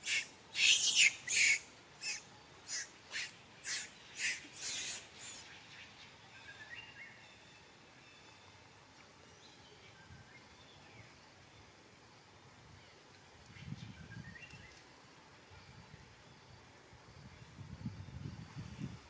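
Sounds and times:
young monkey screaming: 0.0s - 5.5s.

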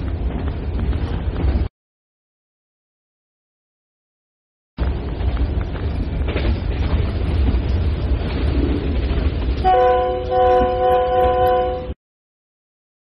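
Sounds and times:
wind buffeting: 0.0s - 1.7s, 4.8s - 12.0s
locomotive low rumble: 4.8s - 12.0s
locomotive air horn blast: 9.6s - 12.0s.

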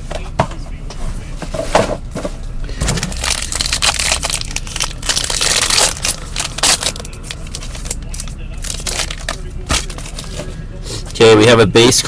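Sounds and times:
wrapper tearing and crinkling: 2.8s - 10.3s.

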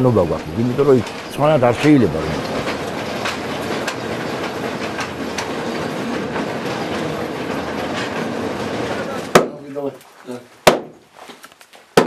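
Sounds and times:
rail car rattling on track: 0.0s - 9.3s.

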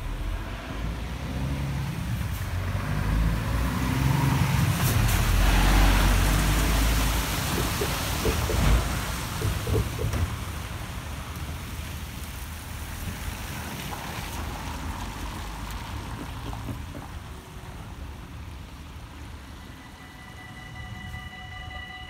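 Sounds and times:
road traffic passing: 0.0s - 22.0s
railway crossing warning bells: 6.0s - 10.3s, 19.1s - 22.0s.

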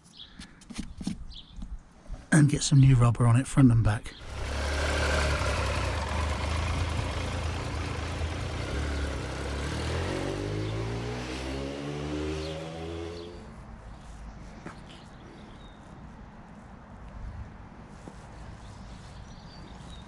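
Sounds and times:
motorcycle engine accelerating: 4.2s - 13.5s.

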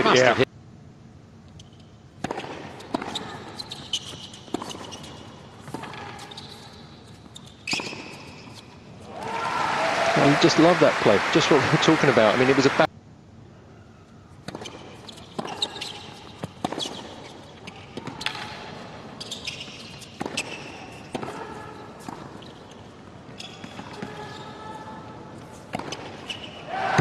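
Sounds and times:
tennis balls struck by rackets: 2.2s - 6.2s, 14.4s - 18.7s, 20.0s - 22.6s, 25.6s - 26.2s.

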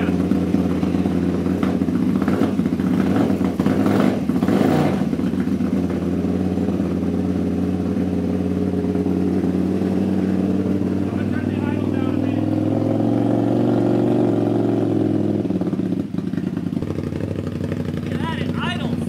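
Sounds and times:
engine popping: 0.0s - 19.0s
motorcycle engine running: 0.0s - 19.0s.

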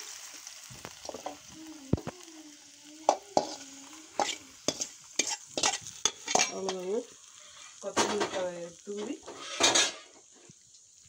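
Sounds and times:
oil sizzling: 0.0s - 11.0s
metal spoon clinking and scraping pan: 3.0s - 10.2s.

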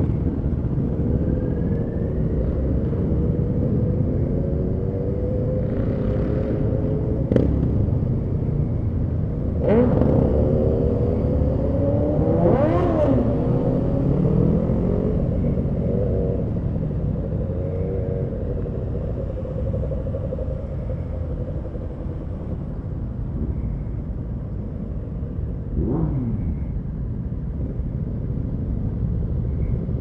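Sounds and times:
motorcycle engine rumble: 0.0s - 30.0s
motorcycle engine revving: 9.6s - 16.5s, 25.8s - 26.7s.

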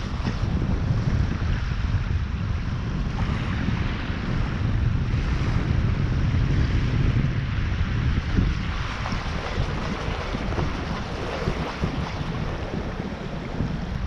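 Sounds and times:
wind buffeting microphone: 0.0s - 14.0s
small waves breaking on sand: 7.6s - 14.0s.

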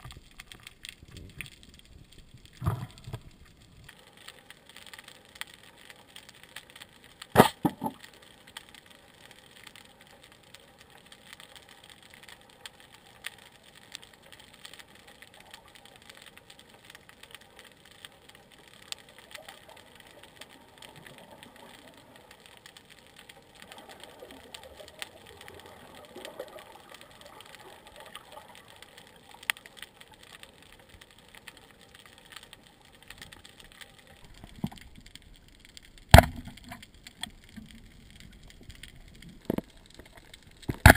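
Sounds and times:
underwater crackle and ticks: 0.0s - 40.9s
speargun shot crack underwater: 7.4s - 8.0s, 36.1s - 36.8s, 40.7s - 40.9s.

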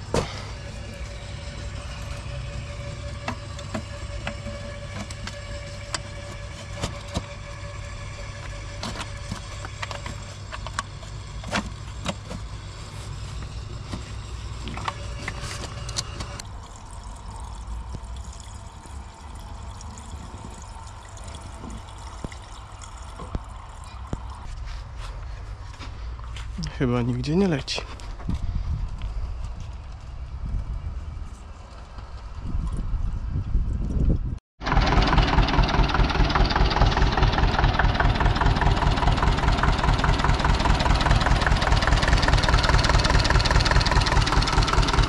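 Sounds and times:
tractor diesel engine idling: 0.0s - 16.4s, 34.6s - 45.0s.

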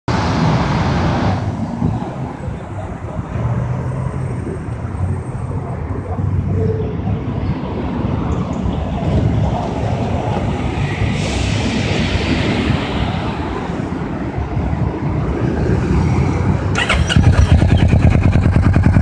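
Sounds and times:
motorcycle engine idling: 16.8s - 19.0s.

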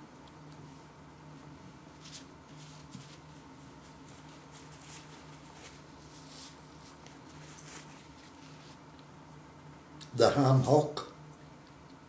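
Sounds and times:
low electrical hum: 0.0s - 12.0s
paper napkin rustling: 1.7s - 9.0s.

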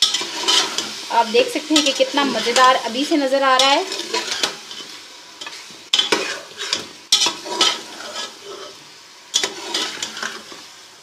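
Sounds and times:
utensil scraping a pot: 0.0s - 1.0s, 3.5s - 10.6s
meat sizzling in a pot: 0.0s - 11.0s.

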